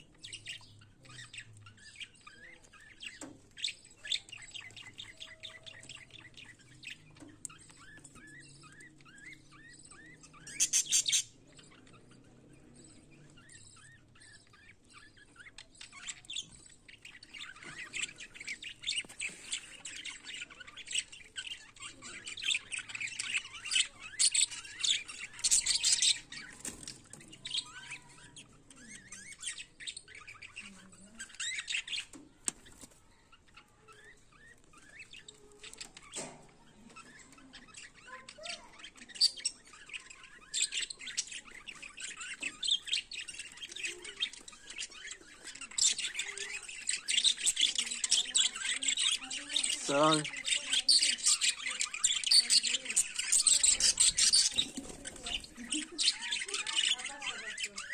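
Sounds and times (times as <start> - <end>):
budgerigars chattering: 0.0 - 57.9.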